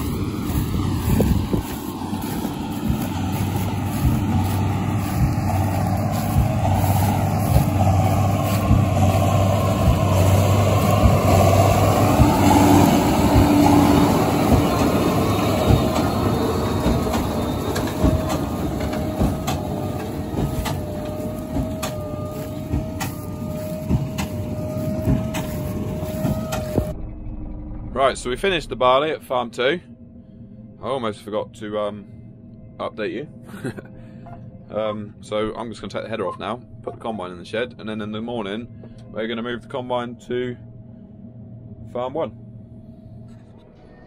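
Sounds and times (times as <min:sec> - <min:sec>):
diesel machinery engine hum: 0:00.0 - 0:29.5
steady high whine: 0:00.0 - 0:44.0.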